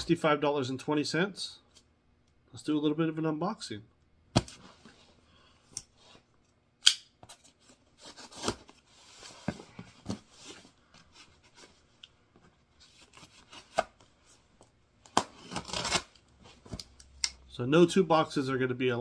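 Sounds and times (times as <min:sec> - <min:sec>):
knife scraping packing tape: 0:15.2 - 0:16.2.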